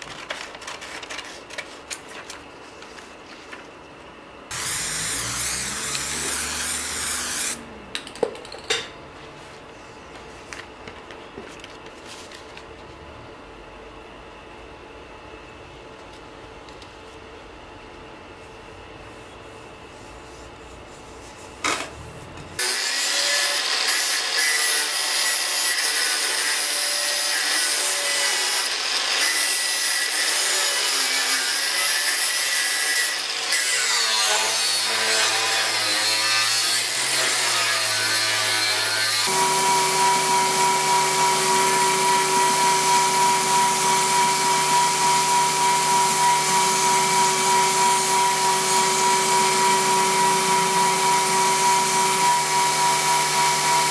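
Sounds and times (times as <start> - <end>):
angle grinder cutting steel: 4.5 - 7.7, 22.6 - 53.9
belt grinder whine: 4.5 - 7.8, 32.9 - 53.9.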